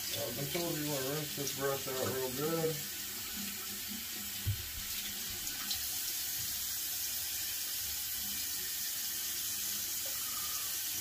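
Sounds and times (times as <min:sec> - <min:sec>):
tap water running into sink: 0:00.0 - 0:11.0.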